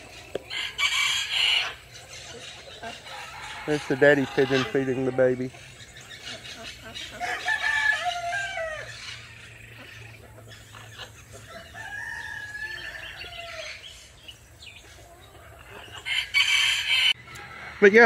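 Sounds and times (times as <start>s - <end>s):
rooster crowing: 0.5s - 1.8s, 3.0s - 5.5s, 7.2s - 9.5s, 11.4s - 13.9s, 16.0s - 18.0s.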